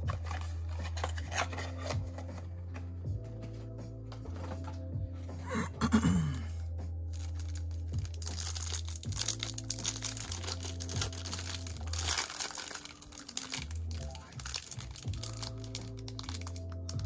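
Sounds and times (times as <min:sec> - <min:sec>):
background music with low notes: 0:00.0 - 0:17.0
plastic wrappers crinkling: 0:07.1 - 0:17.0.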